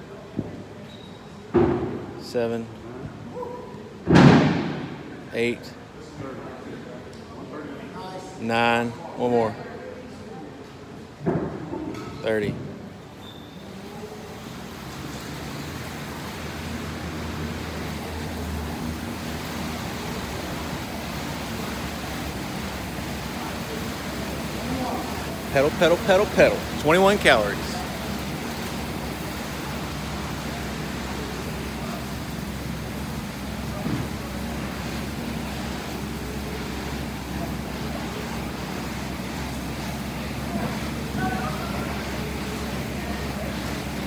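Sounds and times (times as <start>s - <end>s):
air bike fan whooshing: 14.3s - 44.0s.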